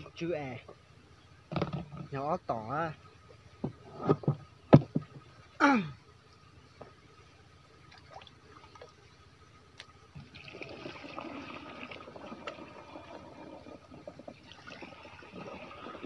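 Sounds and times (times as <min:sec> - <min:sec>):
water pouring into tank: 0:10.2 - 0:16.0.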